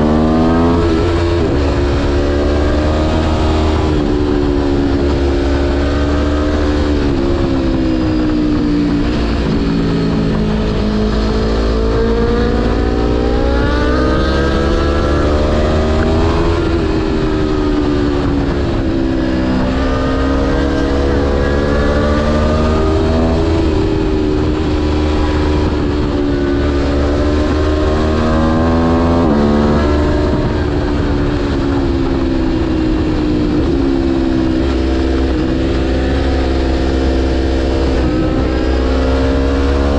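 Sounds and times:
motorcycle engine accelerating: 0.0 - 39.9
wind rumble on microphone: 0.0 - 39.9.

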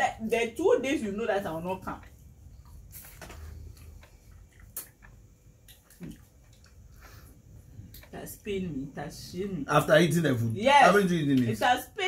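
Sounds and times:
chewing: 1.8 - 8.2.

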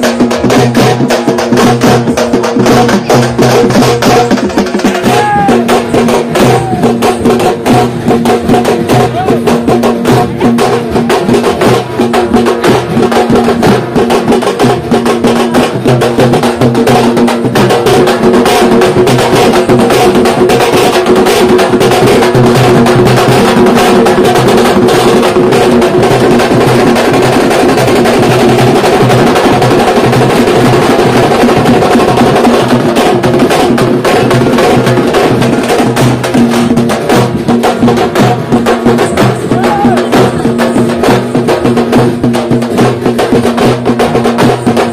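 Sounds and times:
frame drums beaten with sticks: 0.0 - 44.9.

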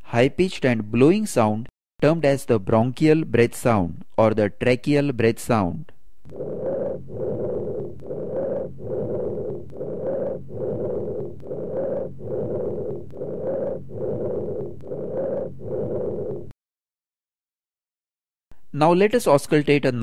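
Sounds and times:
high-pitched blowing breath sounds: 6.3 - 16.5.

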